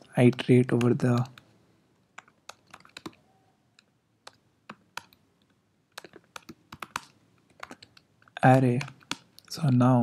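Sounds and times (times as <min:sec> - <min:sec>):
computer keyboard typing: 0:00.2 - 0:01.5, 0:02.2 - 0:03.2, 0:03.8 - 0:05.2, 0:05.9 - 0:10.0.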